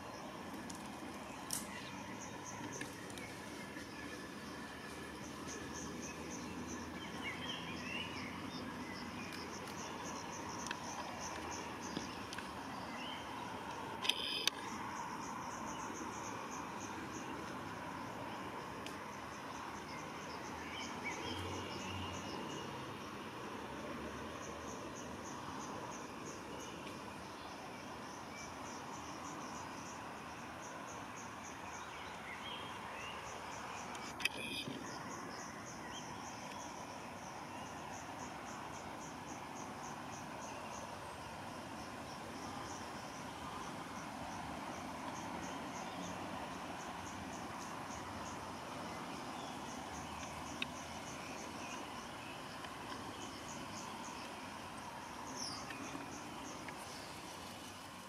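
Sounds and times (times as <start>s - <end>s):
insect chirping: 0.0s - 58.0s
faint bird chirps: 5.4s - 15.0s, 31.7s - 36.8s
bird chirps: 14.0s - 14.7s.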